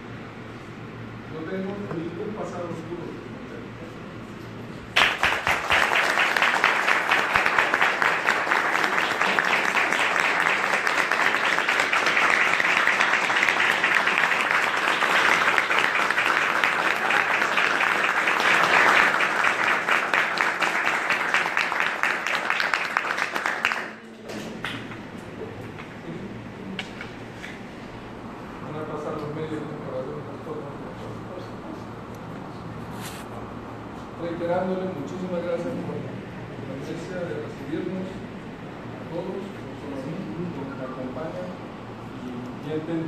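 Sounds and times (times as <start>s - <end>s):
small group applauding: 4.9s - 25.9s.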